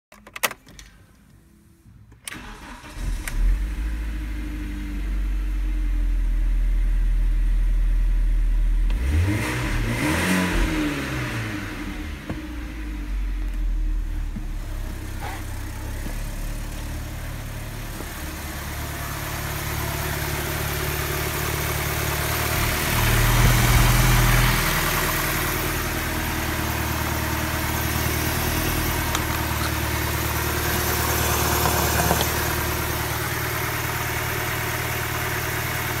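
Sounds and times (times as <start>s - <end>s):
car engine idling: 11.4s - 36.0s.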